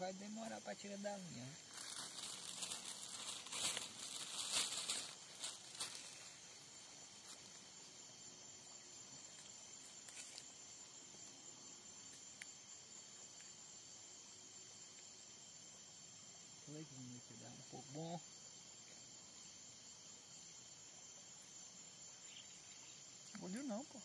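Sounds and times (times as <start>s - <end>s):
crickets trilling: 0.0s - 24.0s
rustling handling noise: 1.7s - 6.4s.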